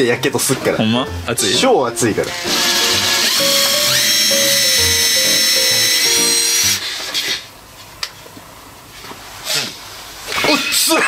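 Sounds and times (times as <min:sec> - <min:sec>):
impact driver motor whine: 0:02.3 - 0:07.4.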